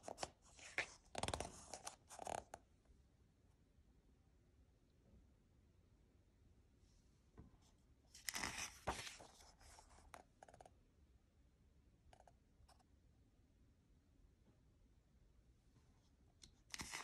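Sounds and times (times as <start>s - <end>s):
paper rustling: 0.0s - 2.5s, 8.2s - 10.1s, 16.7s - 17.0s
book page turning: 0.0s - 2.6s, 8.1s - 10.1s, 16.6s - 17.0s.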